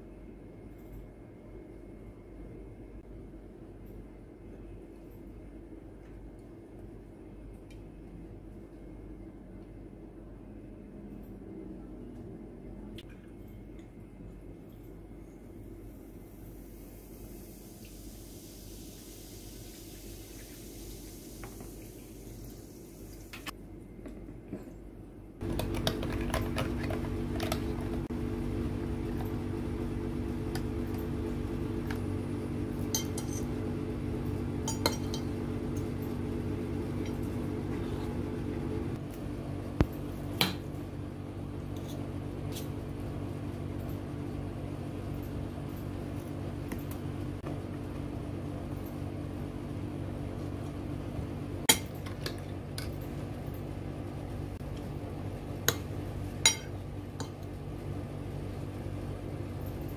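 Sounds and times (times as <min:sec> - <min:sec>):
low steady hum: 0:00.0 - 0:59.9
utensils clinking on a plate: 0:34.7 - 0:35.3.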